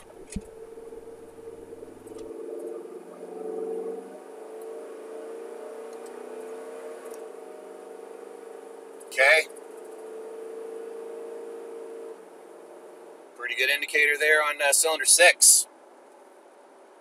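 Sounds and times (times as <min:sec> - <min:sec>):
car engine accelerating hard: 0:00.0 - 0:13.5.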